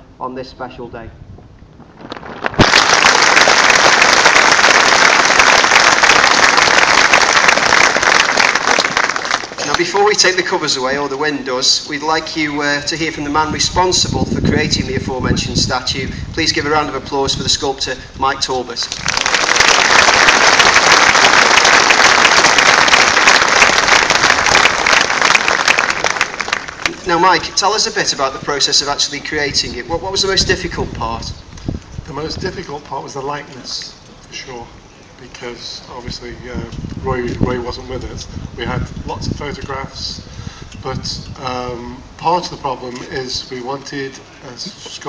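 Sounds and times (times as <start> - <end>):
large crowd applauding: 2.5 - 10.0, 18.9 - 27.6.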